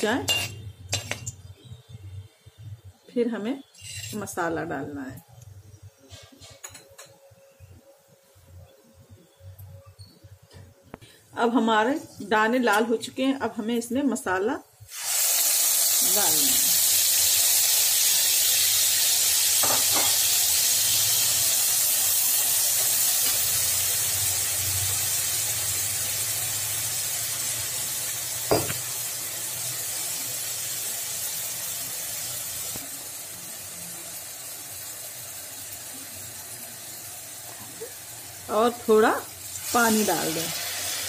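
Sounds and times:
steel spoon clinking on pan: 0.3 - 1.4
paste sizzling in hot oil: 14.9 - 41.0.

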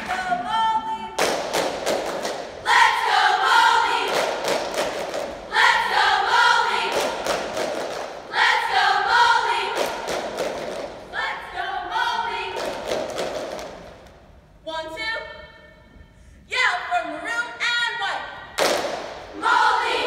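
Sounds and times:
sharp claps and thuds: 1.2 - 2.6, 4.0 - 5.4, 6.8 - 8.2, 9.7 - 11.0, 12.5 - 14.2, 18.6 - 19.2.

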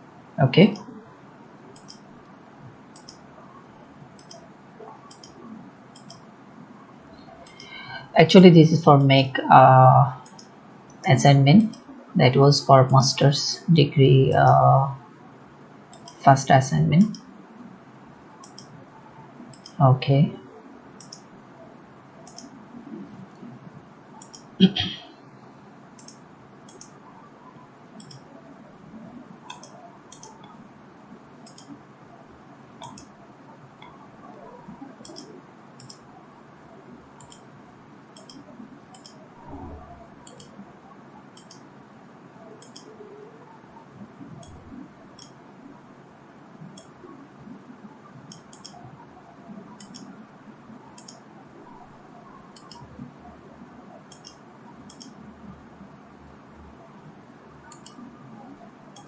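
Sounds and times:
computer mouse clicking: 1.7 - 2.1, 2.9 - 3.2, 4.2 - 6.3, 7.2 - 7.9, 10.2 - 11.0, 15.9 - 16.2, 18.4 - 18.8, 19.5 - 19.8, 21.0 - 21.3, 22.2 - 23.5, 24.2 - 24.5, 26.0 - 27.2, 28.0 - 28.3, 29.4 - 30.6, 31.4 - 31.8, 32.8 - 33.2, 33.8 - 36.0, 37.2 - 37.5, 38.1 - 40.6, 41.3 - 41.7, 42.6 - 43.5, 44.2 - 45.4, 46.6 - 47.0, 48.2 - 50.2, 51.0 - 53.1, 54.1 - 55.2, 57.6 - 59.0.

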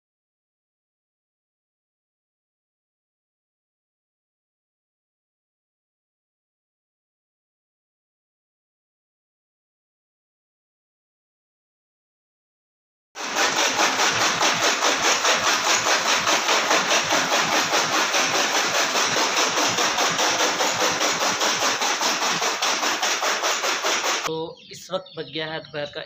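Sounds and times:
chaff cutter chopping stalks: 13.2 - 24.3.

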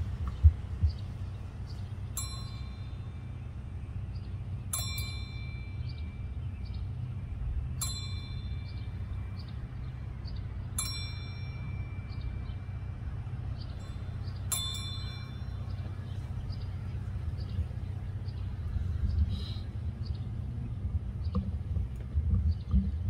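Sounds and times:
low rumble: 0.0 - 23.0
bell tolling: 10.8 - 12.8, 13.8 - 15.8.

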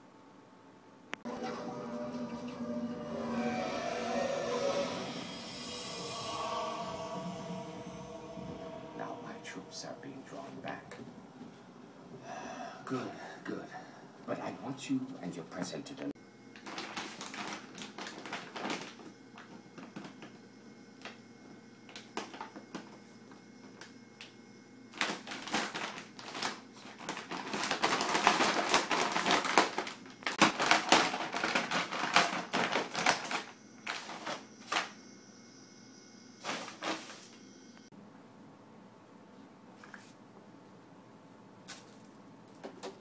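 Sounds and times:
plastic bag crinkling: 16.6 - 19.5, 25.0 - 34.8.

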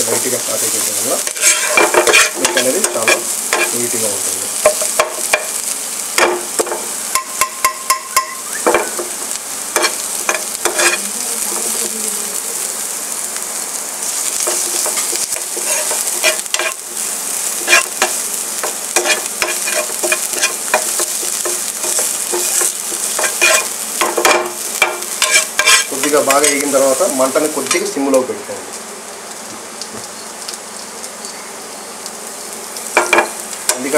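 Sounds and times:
vegetables sizzling in hot oil: 0.0 - 33.9
steel spoon scraping a pan: 1.2 - 3.8, 9.8 - 11.1, 14.1 - 16.8, 17.6 - 26.8.

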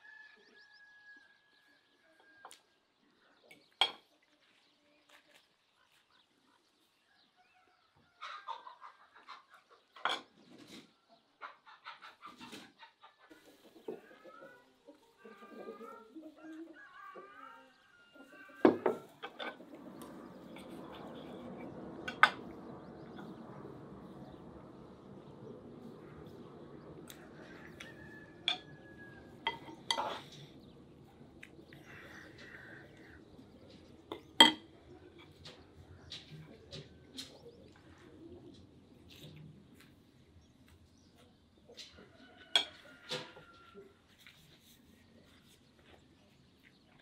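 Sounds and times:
chickens clucking: 7.4 - 44.2
steady rushing noise: 19.6 - 29.5
cutlery and dishes clinking: 29.4 - 30.4, 34.1 - 34.7.

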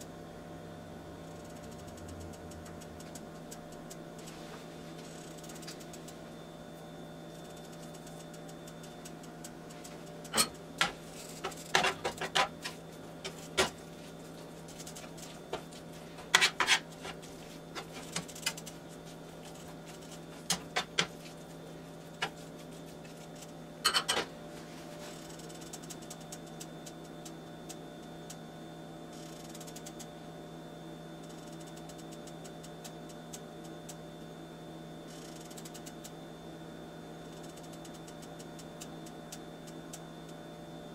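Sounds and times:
metal fork scraping a skillet: 16.3 - 17.2.

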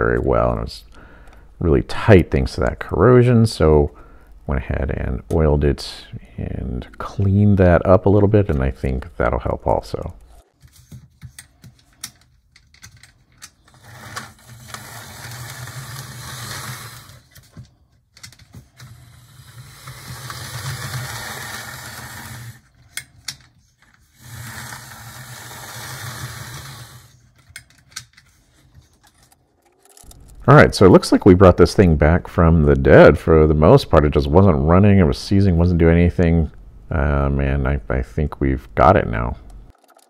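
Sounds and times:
model train motor whirring: 13.7 - 17.3, 18.8 - 22.8, 24.0 - 27.2.

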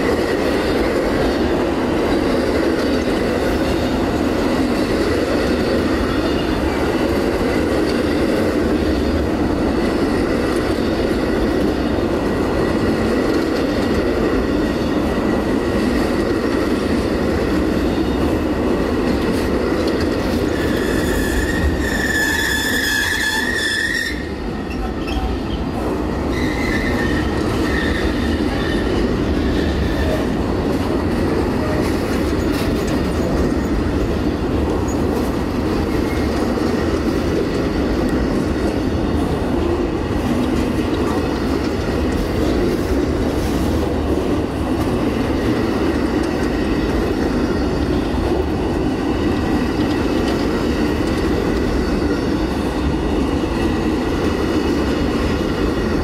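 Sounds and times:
train wheels rumbling on rail: 0.0 - 56.0
high wheel squeal: 20.5 - 25.6, 26.3 - 30.2.

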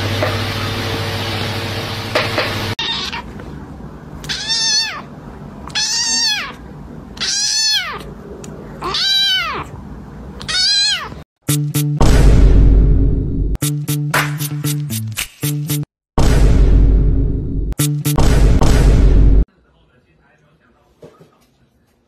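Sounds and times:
kitten meowing: 2.8 - 3.3, 4.2 - 6.6, 7.2 - 8.1, 8.8 - 9.7, 10.4 - 11.2.

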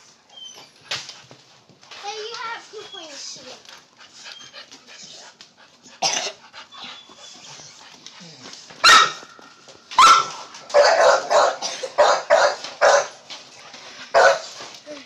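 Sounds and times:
dog barking: 8.8 - 9.3, 9.9 - 13.2, 14.1 - 14.6.

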